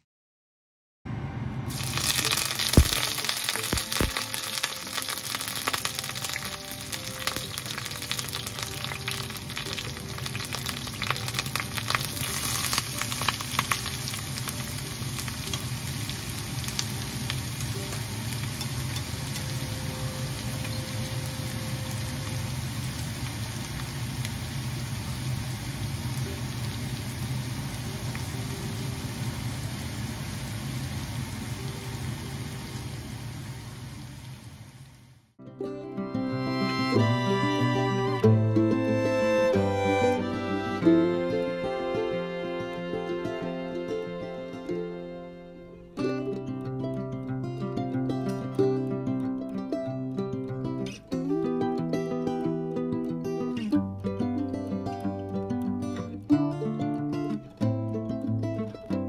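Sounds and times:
oil sizzling in a pan: 1.7 - 35.2
onions frying: 1.7 - 35.2.

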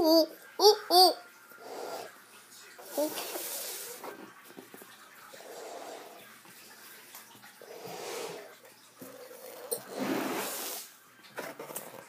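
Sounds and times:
person blowing up a balloon: 9.9 - 10.9.

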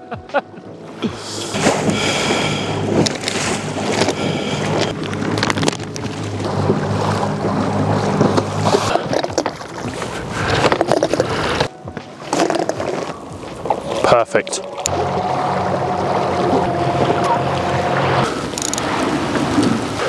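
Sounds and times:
boat motor humming: 0.0 - 20.0
choppy water: 0.0 - 20.0.

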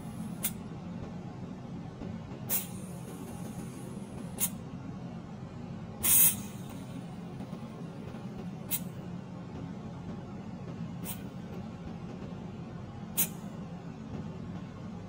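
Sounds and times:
steady low hum: 0.0 - 15.0
butane gas hissing: 2.5 - 4.6, 6.0 - 6.7, 13.2 - 13.4.

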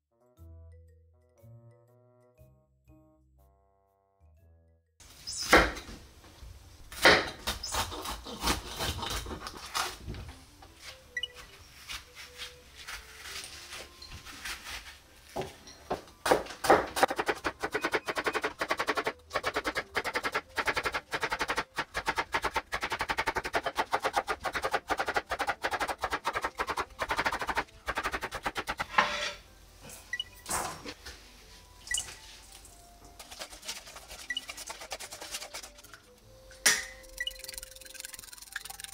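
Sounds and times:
knife chopping on cutting board: 16.2 - 29.0
spoon scraping seeds: 33.2 - 36.1.

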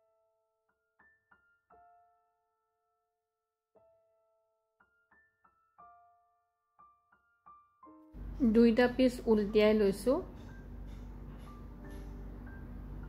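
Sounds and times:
soft piano notes: 3.8 - 13.0.

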